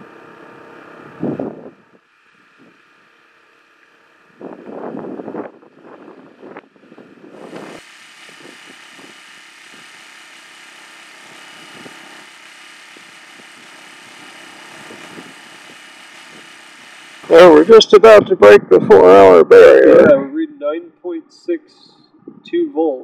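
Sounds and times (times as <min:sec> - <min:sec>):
generator engine running: 0:00.0 - 0:22.0
wind buffeting microphone: 0:01.0 - 0:02.8, 0:04.3 - 0:09.9, 0:17.5 - 0:20.4, 0:22.1 - 0:22.7.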